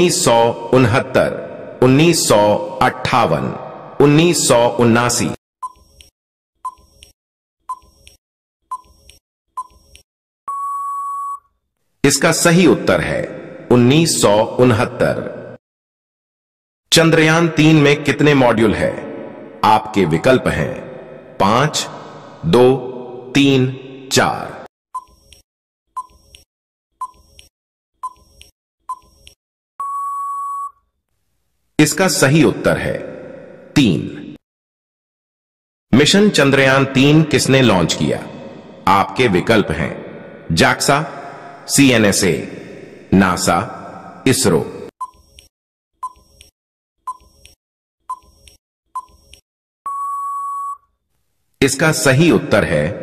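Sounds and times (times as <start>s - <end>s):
long steady beep: 10.5s - 11.5s, 29.8s - 30.8s, 49.9s - 50.9s.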